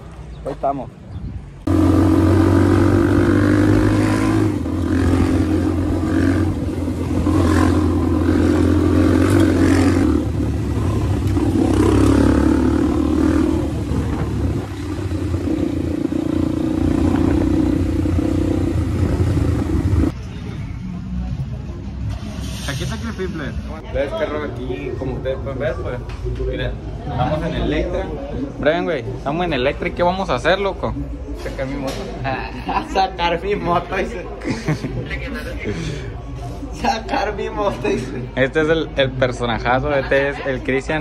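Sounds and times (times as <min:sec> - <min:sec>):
motorcycle engine running: 0:01.7 - 0:20.2.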